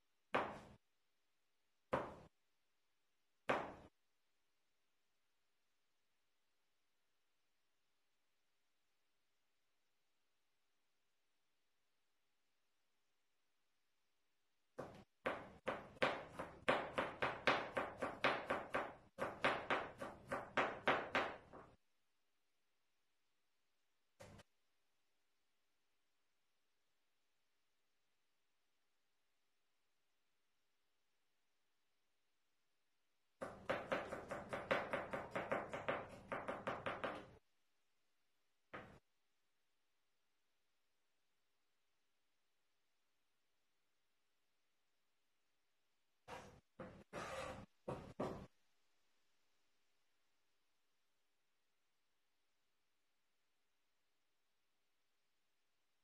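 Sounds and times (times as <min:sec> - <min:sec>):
knife chopping on cutting board: 0:33.4 - 0:37.2.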